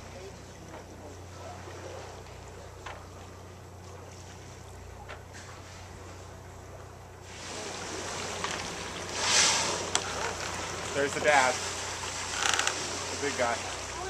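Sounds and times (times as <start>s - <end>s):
boat engine idling: 0.0s - 14.0s
water noise: 0.0s - 14.0s
wind: 0.0s - 14.0s
rushing hiss: 9.1s - 10.2s.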